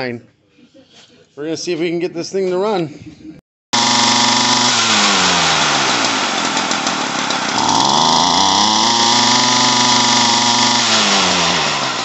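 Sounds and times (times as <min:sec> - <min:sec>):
trimmer engine revving: 0:03.7 - 0:12.0.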